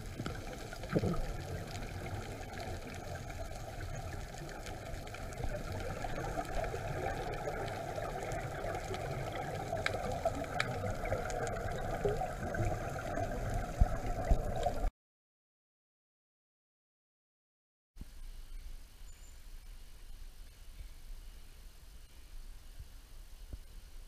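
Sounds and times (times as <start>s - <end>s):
faint bubbling of exhaled air: 0.0s - 14.9s
low underwater noise: 0.0s - 14.9s.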